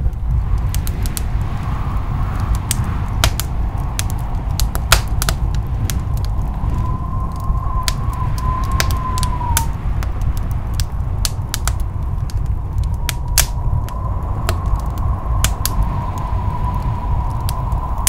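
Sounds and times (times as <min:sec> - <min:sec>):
low hum: 0:00.0 - 0:18.0
faint wavering whistle-like tone: 0:06.6 - 0:09.7.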